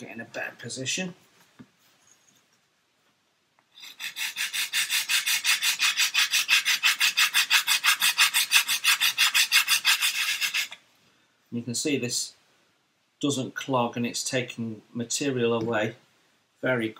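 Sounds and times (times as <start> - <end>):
sanding block scraping wood: 3.8 - 10.8.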